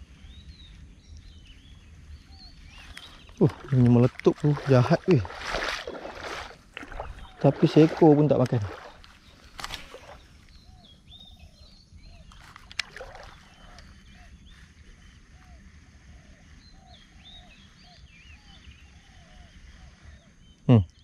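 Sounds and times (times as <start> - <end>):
animals chirping: 1.6 - 14.7.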